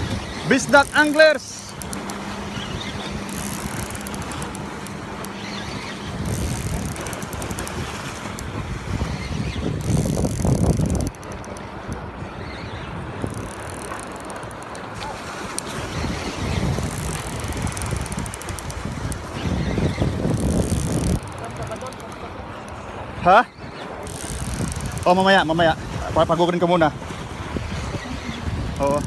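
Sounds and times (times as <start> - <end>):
wind rumbling on microphone: 0.0 - 29.0
fishing reel clicking: 0.1 - 8.5, 9.7 - 12.0, 13.2 - 14.9, 16.4 - 22.2, 24.0 - 25.4, 28.7 - 29.0.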